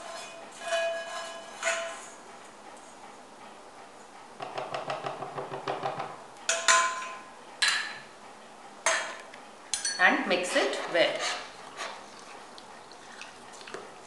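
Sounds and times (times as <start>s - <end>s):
spatula scraping and tapping pan: 0.0s - 2.1s.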